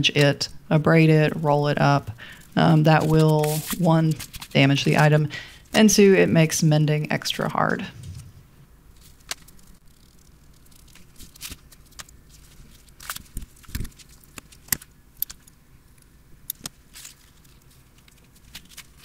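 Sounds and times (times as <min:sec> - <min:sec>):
paper pamphlet handling clicks: 0:09.2 - 0:15.6.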